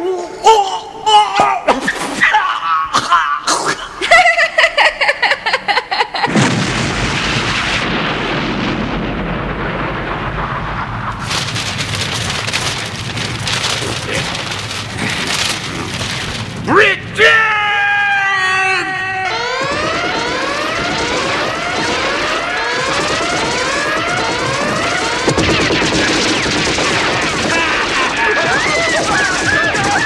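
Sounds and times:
large explosion with rumble: 0:06.3 - 0:18.2, 0:19.3 - 0:30.0
sharp bangs: 0:06.3 - 0:30.0.

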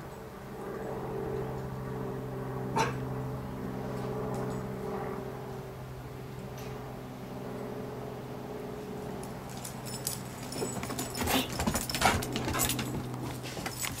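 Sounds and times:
steady low hum: 0:00.0 - 0:14.0
dog collar tags jingling: 0:09.5 - 0:14.0.

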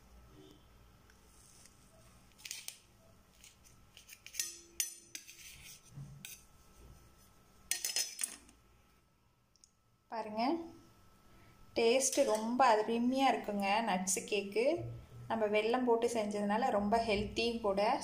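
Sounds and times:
knife scraping a steel plate: 0:03.4 - 0:06.5.

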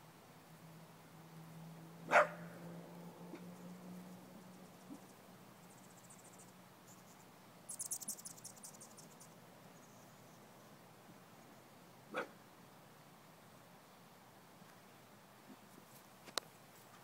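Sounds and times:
low steady hum: 0:00.0 - 0:16.9
dog barking: 0:02.1 - 0:02.6, 0:12.1 - 0:12.4
high-pitched chirping trill: 0:05.7 - 0:09.3.

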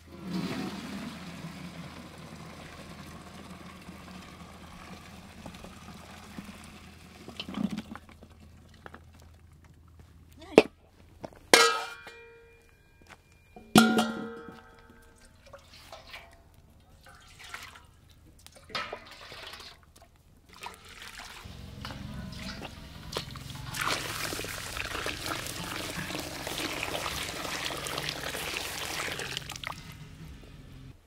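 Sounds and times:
liquid pouring into a basin: 0:00.0 - 0:09.1, 0:15.2 - 0:30.1
sharp metal clang: 0:11.6 - 0:12.6, 0:13.6 - 0:14.8.

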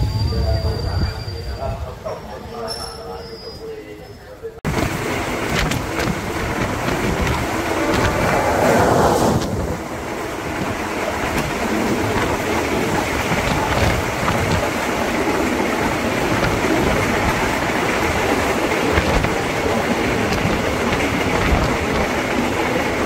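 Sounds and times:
train wheels rumbling on rails: 0:04.6 - 0:23.0
clickety-clack over rail joints: 0:04.7 - 0:23.0.

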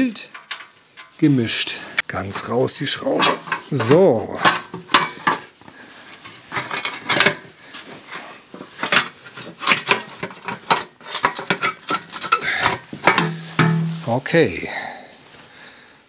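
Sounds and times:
metal grille clinking: 0:00.0 - 0:01.6, 0:08.9 - 0:14.2.

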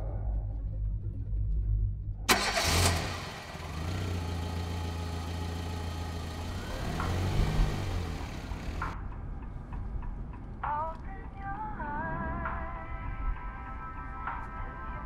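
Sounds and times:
car engine idling: 0:02.3 - 0:09.0
car engine revving: 0:02.3 - 0:09.0.

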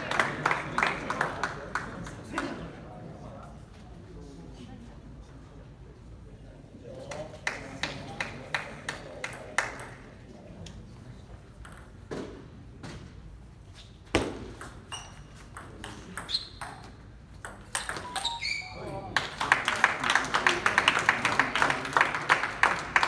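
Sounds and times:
short squeaks: 0:14.9 - 0:15.4, 0:18.1 - 0:18.8.

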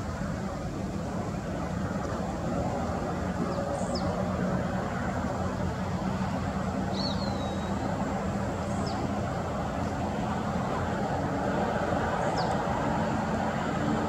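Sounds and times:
jet airliner distant rumble: 0:00.0 - 0:14.0
high whistled bird calls: 0:06.9 - 0:07.9.

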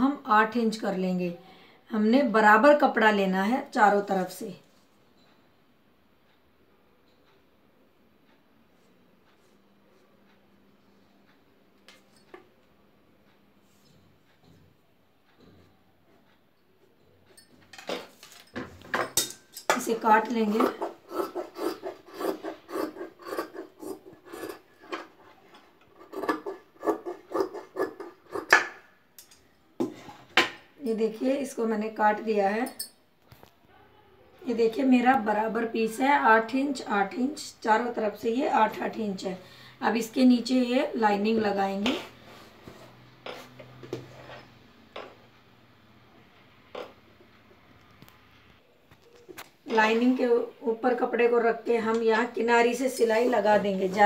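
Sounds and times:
shears snipping fabric: 0:20.4 - 0:25.0.

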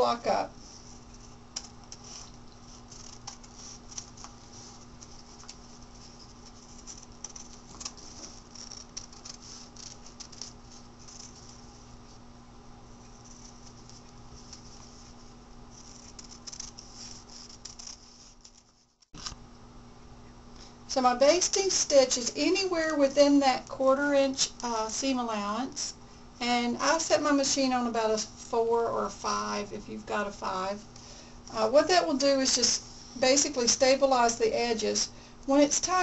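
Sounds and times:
paper crackling: 0:00.6 - 0:12.2, 0:13.0 - 0:19.4
scissors cutting paper and fabric: 0:01.1 - 0:11.6, 0:15.8 - 0:18.7.

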